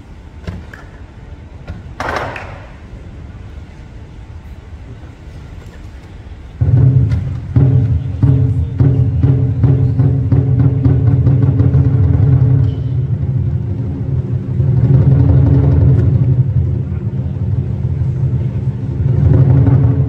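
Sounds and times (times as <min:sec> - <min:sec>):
drum beat: 0:06.6 - 0:16.6
cymbals and gong ringing: 0:06.6 - 0:20.0.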